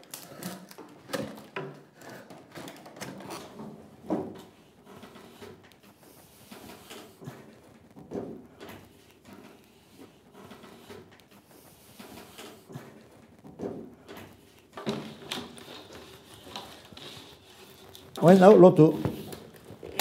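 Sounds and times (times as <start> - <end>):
wood strips creaking and scraping: 0.0 - 5.8, 11.9 - 20.0.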